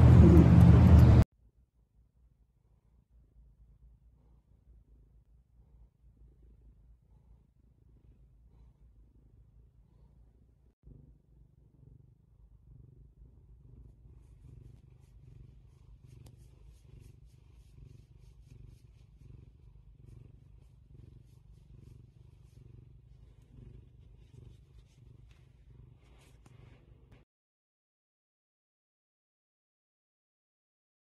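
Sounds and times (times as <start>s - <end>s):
cat purring: 2.5s - 27.3s.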